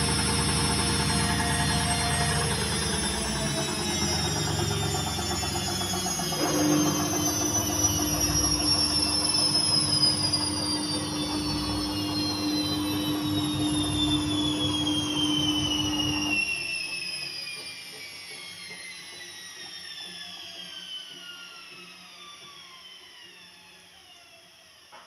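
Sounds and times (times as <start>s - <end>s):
washing machine drum spinning down: 0.0s - 16.8s.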